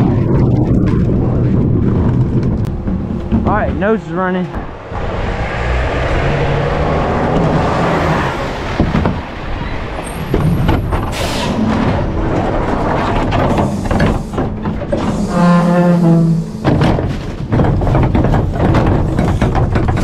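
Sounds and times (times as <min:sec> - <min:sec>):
garbage truck running: 0:00.0 - 0:20.0
scattered knocks: 0:02.1 - 0:04.7, 0:08.7 - 0:09.3, 0:16.3 - 0:20.0.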